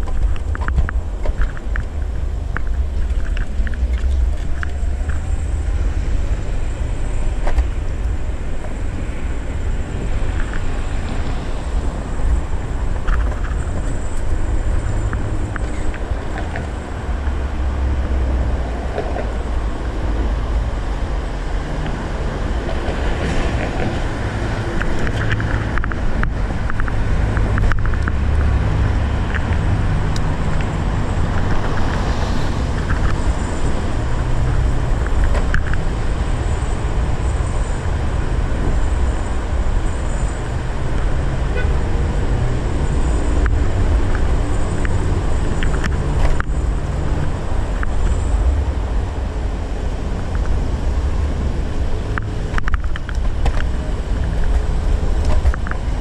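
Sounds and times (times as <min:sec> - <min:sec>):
road noise low rumble: 0:00.0 - 0:56.0.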